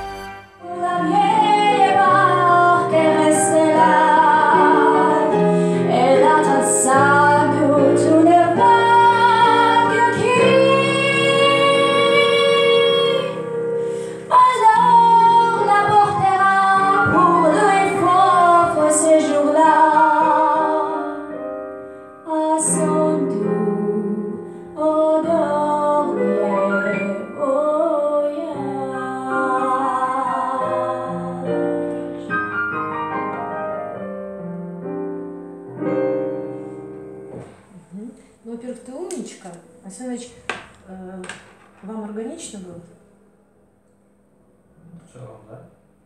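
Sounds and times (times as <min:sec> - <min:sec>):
woman singing with vibrato: 0:00.0 - 0:13.6, 0:14.2 - 0:21.3, 0:22.3 - 0:31.8
digital piano: 0:00.0 - 0:42.4.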